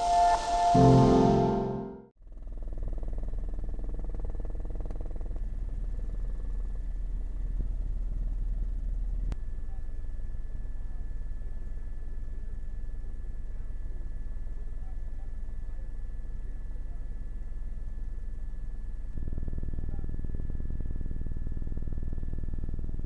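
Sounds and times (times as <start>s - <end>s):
faint high whine: 0.0s - 2.1s.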